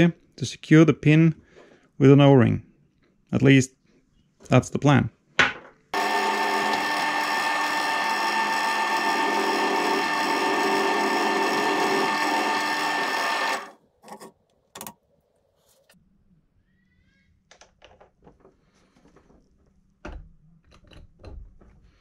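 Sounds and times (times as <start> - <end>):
drill press running: 6.0 - 13.8.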